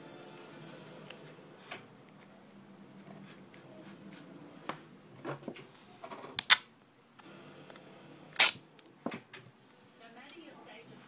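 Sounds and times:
tape ripping from roll: 6.4 - 6.7, 8.4 - 8.7.

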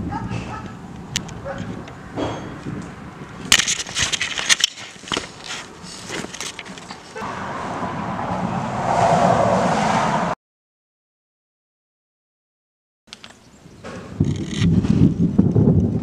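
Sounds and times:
camera handling knocks and rattles: 3.5 - 7.2
steady rushing noise: 7.2 - 10.4.

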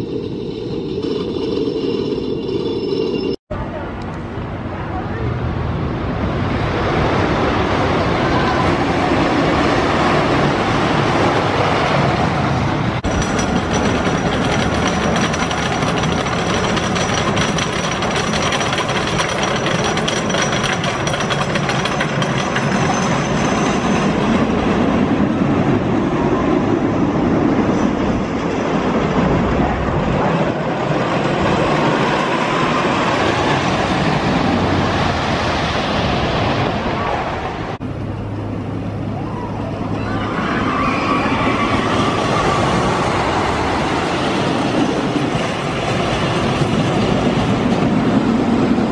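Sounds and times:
roller coaster rumbling and clattering: 0.0 - 48.9.

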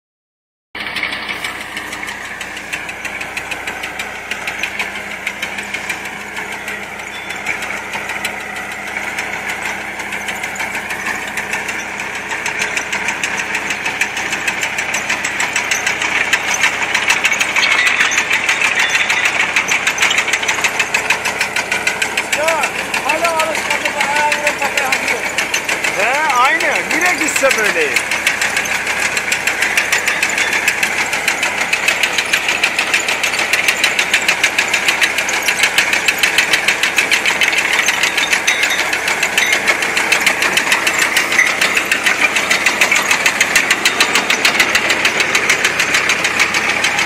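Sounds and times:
potato digger rattling: 0.8 - 47.0
tractor engine running: 0.8 - 47.0.

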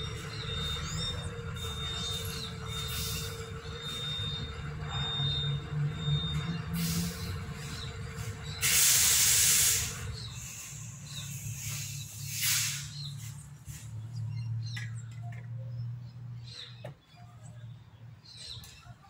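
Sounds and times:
loud hiss: 8.6 - 13.9.

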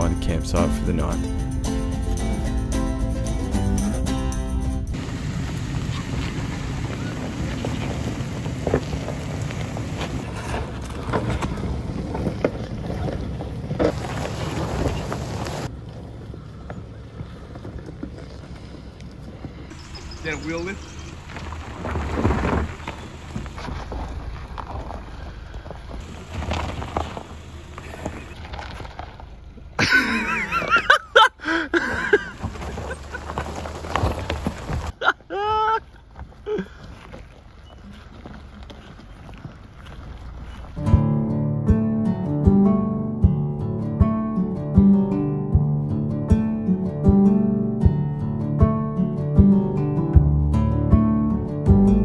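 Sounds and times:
low engine rumble: 0.0 - 52.0
wind buffeting microphone: 4.9 - 15.7
tyres crunching on stones: 4.9 - 31.2, 31.8 - 41.1.

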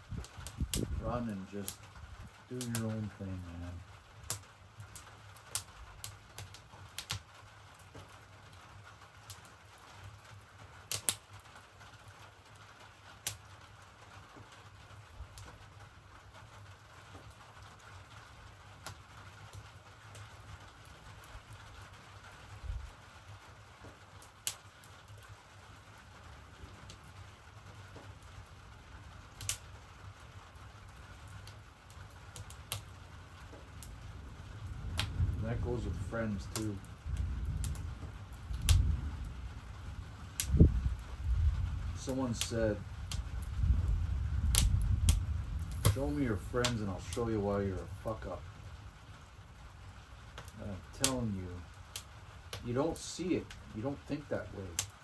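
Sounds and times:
light rain hissing: 0.0 - 55.0
sharp clicks and pops: 0.1 - 1.0, 4.3 - 7.3, 10.9 - 11.3, 29.4 - 29.7, 32.3 - 32.9, 35.0 - 35.4, 37.6 - 38.9, 40.4 - 41.2, 44.5 - 46.9.

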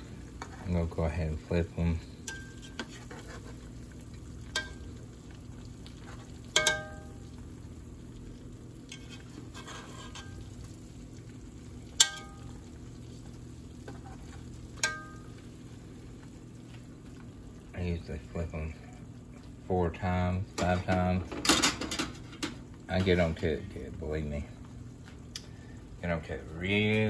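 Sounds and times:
steaks frying in hot oil: 0.0 - 27.0
spatula scraping pot: 2.3 - 3.7, 8.9 - 10.4
metal spatula clinking on pot: 6.6 - 7.1, 12.0 - 12.5.

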